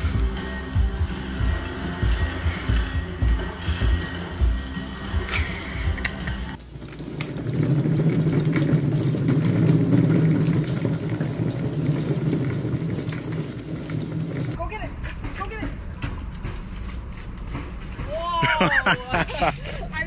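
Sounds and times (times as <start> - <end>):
cat exercise wheel rumbling: 0.0 - 19.8.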